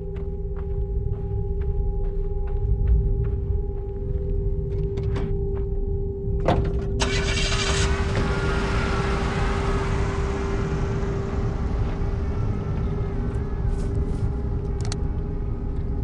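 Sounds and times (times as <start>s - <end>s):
held musical drone: 0.0s - 16.0s
pickup truck engine pulling away: 7.0s - 15.2s.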